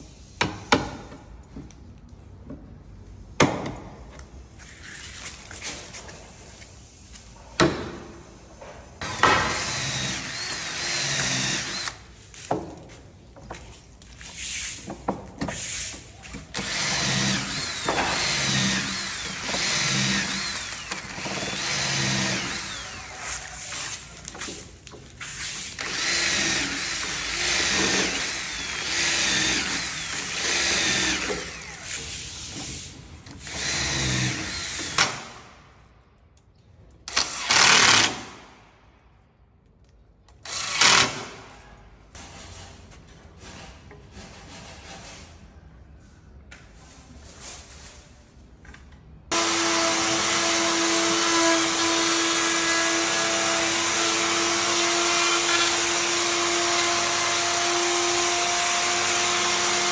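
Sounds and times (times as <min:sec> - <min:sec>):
cordless drill running: 0:09.5 - 0:12.0, 0:16.5 - 0:24.0, 0:25.7 - 0:32.1, 0:33.5 - 0:35.0, 0:49.3 - 0:59.9.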